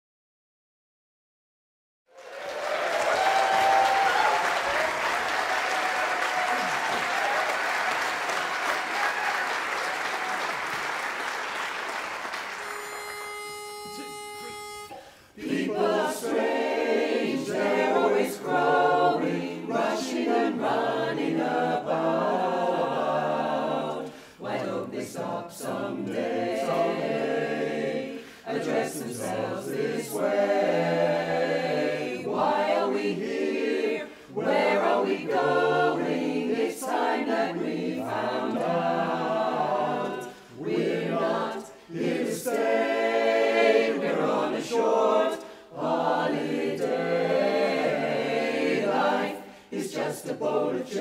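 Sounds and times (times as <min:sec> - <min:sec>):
audience applause: 0:02.1 - 0:13.2
pitch pipe note: 0:12.6 - 0:15.1
a cappella chorus singing: 0:14.6 - 0:51.0.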